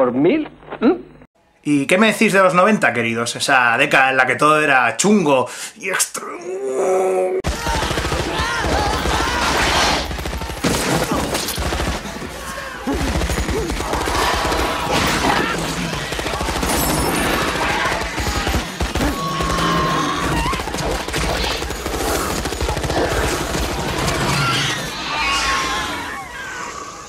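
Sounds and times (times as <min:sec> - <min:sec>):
voice: 0:00.0 - 0:01.1, 0:01.7 - 0:07.4
automatic rifle fire: 0:07.4 - 0:24.3.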